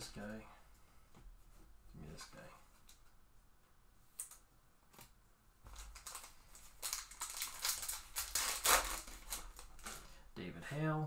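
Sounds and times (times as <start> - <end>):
foil wrapper crinkling and tearing: 5.7 - 10.1.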